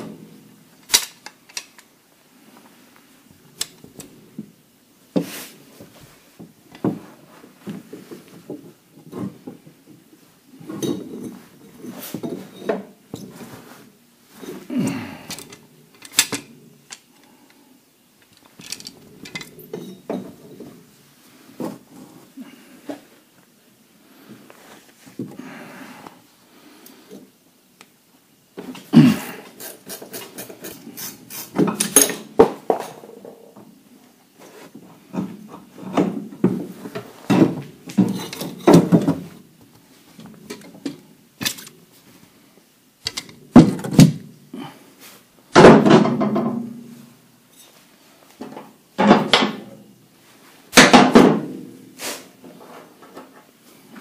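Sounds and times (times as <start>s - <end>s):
tools and metal parts clanking: 0.8s - 1.9s, 10.6s - 13.6s, 14.3s - 17.5s, 18.2s - 20.9s, 31.6s - 33.4s, 35.1s - 39.4s, 40.1s - 41.8s, 43.0s - 44.2s.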